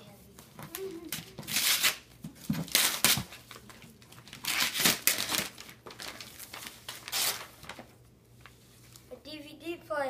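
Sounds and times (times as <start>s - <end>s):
paper crinkling: 0.4s - 9.1s
wrapping paper ripping: 0.6s - 8.0s.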